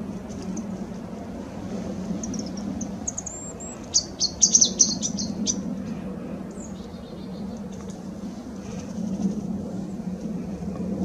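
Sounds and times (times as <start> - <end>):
songbirds calling: 0.0 - 9.0
steady low hum: 0.0 - 11.0.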